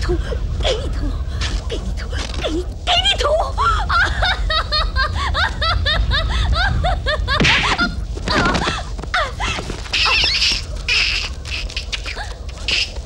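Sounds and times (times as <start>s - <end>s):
woman's high-pitched cries: 0.0s - 12.4s
person falling in dust: 7.2s - 12.5s.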